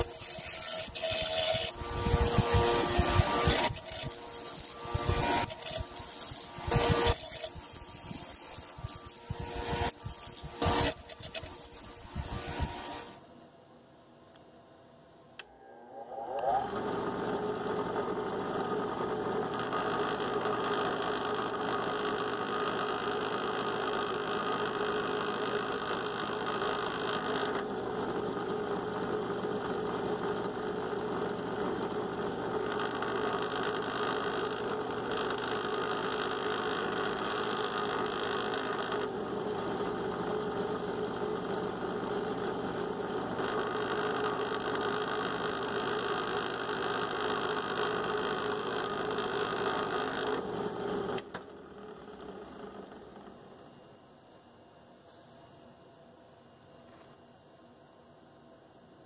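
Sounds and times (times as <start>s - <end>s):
drill bit cutting plastic: 0.0s - 1.8s, 3.2s - 12.2s
drill press motor running: 16.6s - 53.4s.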